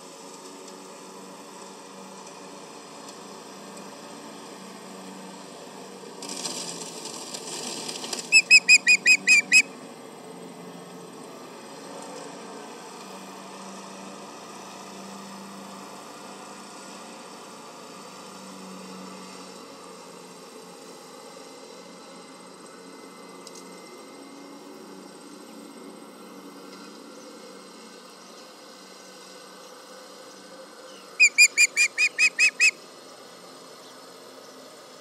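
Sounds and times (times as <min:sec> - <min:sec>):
osprey whistled calls: 0:08.3 - 0:09.8, 0:30.9 - 0:32.8.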